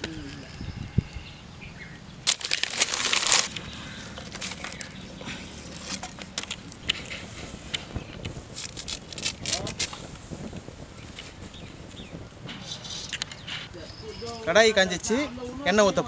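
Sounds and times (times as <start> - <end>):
twigs and paper rustling: 2.2 - 11.5
kindling crackling: 2.2 - 15.8.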